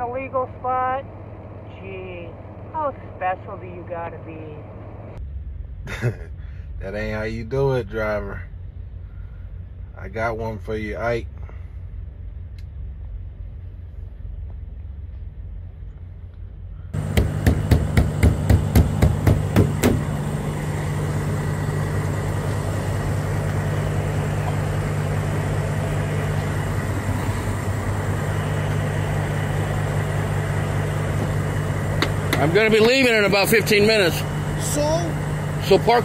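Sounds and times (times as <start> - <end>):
diesel truck idling: 0.0 - 6.9, 11.0 - 36.0
faint low rumble: 0.0 - 17.0
sharp knocks: 17.0 - 20.1.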